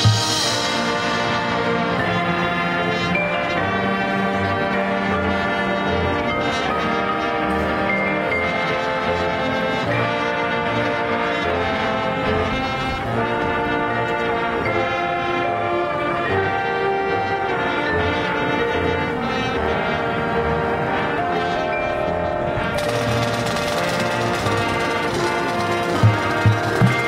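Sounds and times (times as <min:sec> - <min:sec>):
brass band sustained chords: 0:00.0 - 0:27.0.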